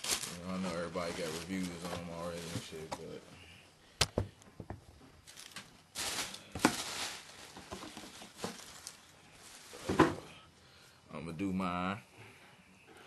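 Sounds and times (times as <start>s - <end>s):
shoebox rustling and knocking: 6.5s - 8.8s, 9.7s - 10.3s.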